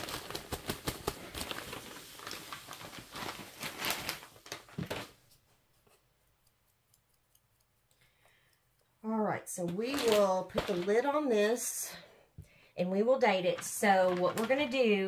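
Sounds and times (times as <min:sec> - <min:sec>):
plastic bag crinkle: 0:00.0 - 0:05.2, 0:09.9 - 0:11.1.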